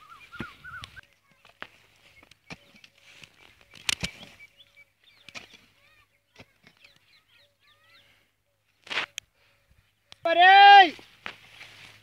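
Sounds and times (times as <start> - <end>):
birds chirping: 0.0 - 10.4
mattock striking dry soil: 0.2 - 7.0, 8.8 - 9.2, 10.9 - 12.0.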